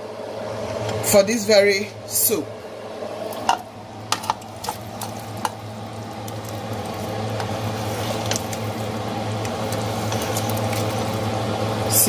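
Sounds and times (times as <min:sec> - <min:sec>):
soup bubbling in pot: 0:03.3 - 0:11.9.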